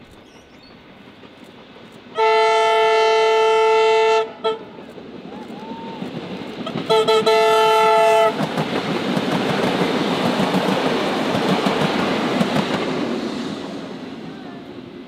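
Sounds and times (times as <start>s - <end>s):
train wheels clacking on rails: 0.0s - 15.0s
train horn: 2.2s - 4.8s, 6.7s - 8.4s.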